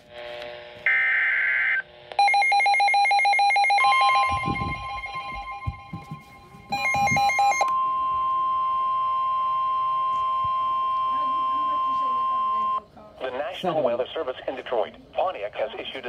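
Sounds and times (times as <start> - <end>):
rapid pulsing alarm beeps: 2.2 - 12.8
long steady alert tone: 2.2 - 12.9.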